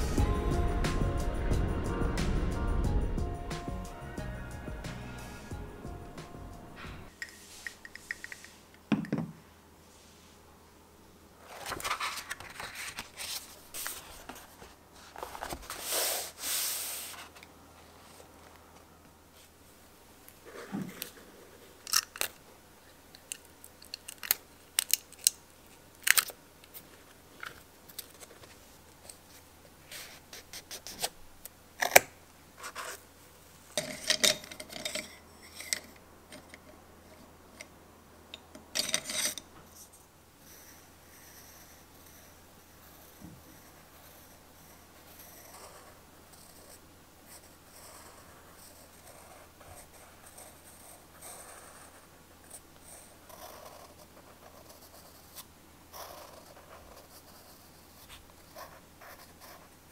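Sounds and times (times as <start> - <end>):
pencil scratching on paper: 40.4 - 59.8.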